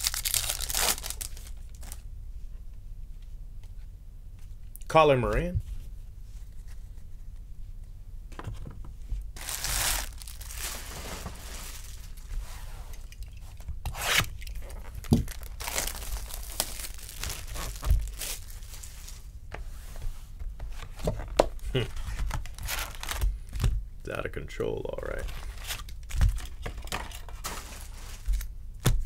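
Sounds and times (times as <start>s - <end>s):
foil wrappers tearing and crinkling: 0.0s - 2.0s, 9.4s - 12.3s, 13.9s - 19.3s, 21.8s - 23.3s.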